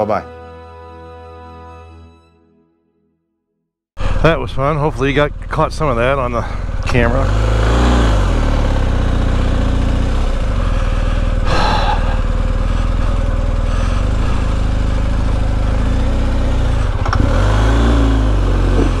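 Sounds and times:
motorcycle engine running: 4.0 - 19.0.

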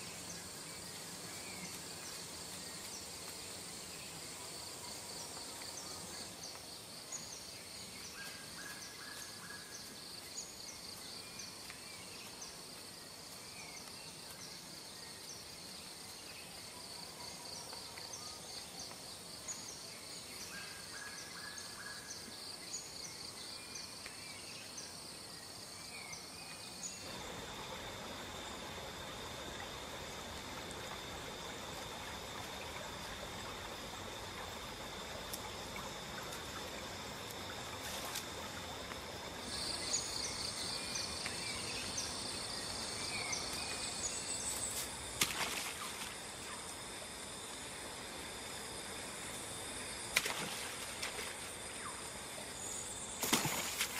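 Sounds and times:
insect drone: 0.0 - 53.9
insects trilling: 0.0 - 53.9
running water: 27.0 - 53.9.

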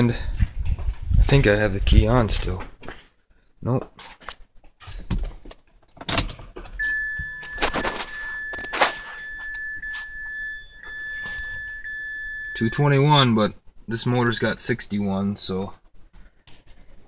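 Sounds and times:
dashboard warning chime beep: 6.8 - 13.3.

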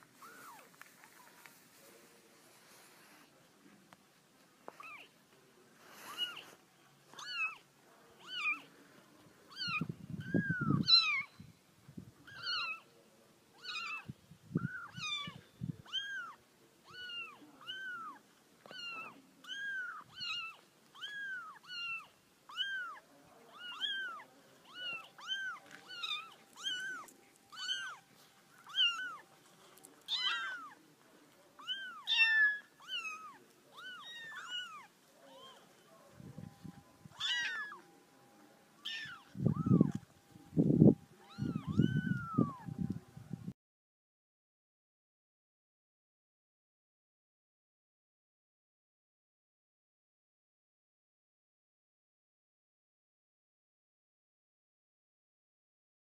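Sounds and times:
kittens mewing: 28.6 - 29.2, 30.0 - 30.8, 31.6 - 35.6, 37.1 - 37.8, 38.8 - 40.0, 41.2 - 42.6.

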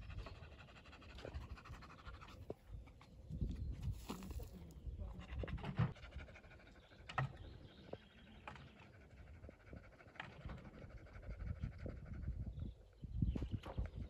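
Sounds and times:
dog panting faintly: 0.0 - 3.3, 5.0 - 12.9.

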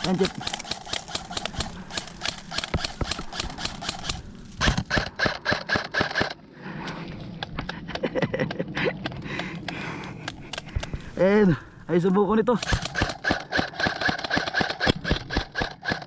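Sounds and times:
airsoft gunfire: 0.0 - 6.4, 12.6 - 16.0.

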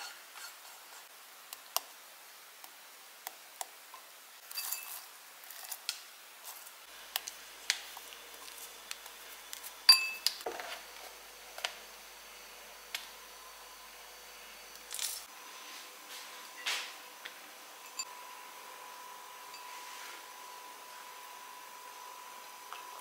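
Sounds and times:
ringing ceramic clink: 9.9 - 10.3.

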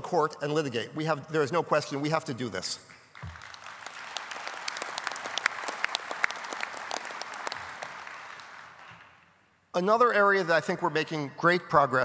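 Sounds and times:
audience applauding: 3.1 - 9.2.

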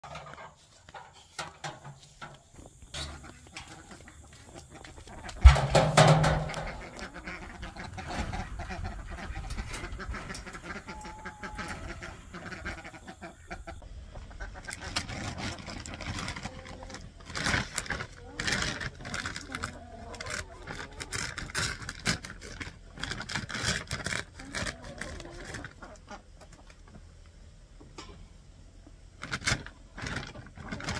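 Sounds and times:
poultry calling: 0.0 - 23.3
hollow thump on steel can: 5.4 - 7.0.

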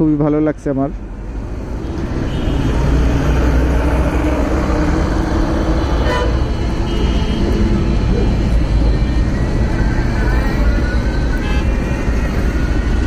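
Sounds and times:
vehicle horn toot: 6.0 - 7.6, 11.3 - 11.8.

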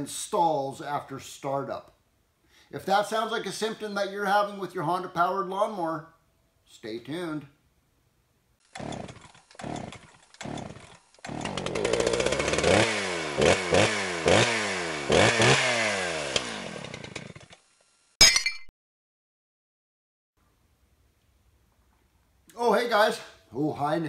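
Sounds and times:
small petrol engine revving: 8.6 - 17.7.

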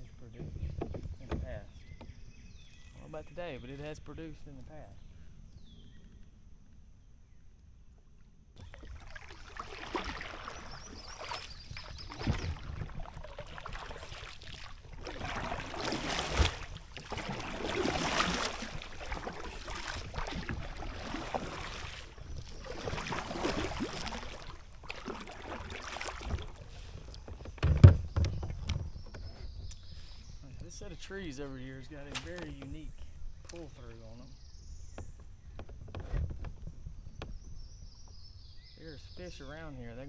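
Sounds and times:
kayak paddle splashing water: 8.6 - 28.8.

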